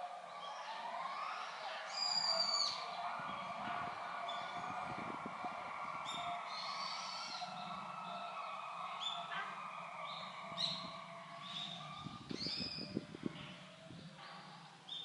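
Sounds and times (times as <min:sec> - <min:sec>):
small birds chirping: 0:10.0 - 0:15.0.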